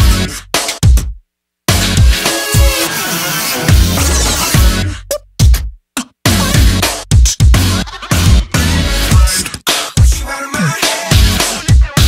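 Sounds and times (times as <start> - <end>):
electronic dance music: 0.0 - 0.8, 1.7 - 5.0, 6.0 - 12.0
sustained bass and synth: 3.7 - 5.2, 6.3 - 7.0, 7.6 - 9.2.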